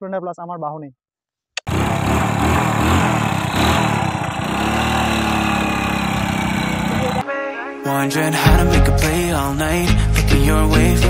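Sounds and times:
motorcycle engine running: 0:01.7 - 0:07.2.

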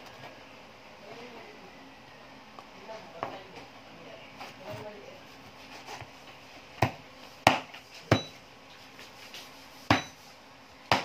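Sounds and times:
knife chopping on plastic board: 0:06.8 - 0:08.3.

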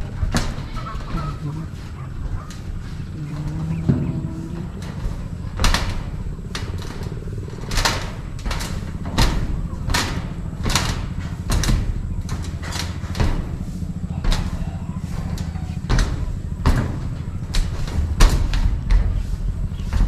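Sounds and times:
footsteps on metal roofing: 0:00.0 - 0:20.0
steady low hum: 0:00.0 - 0:20.0.

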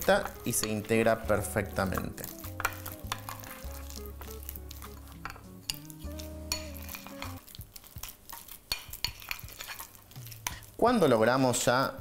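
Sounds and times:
metal spoon scraping sugar paste: 0:00.0 - 0:10.8
soft background music: 0:00.0 - 0:11.3
spoon clinking against glass: 0:04.9 - 0:07.4.

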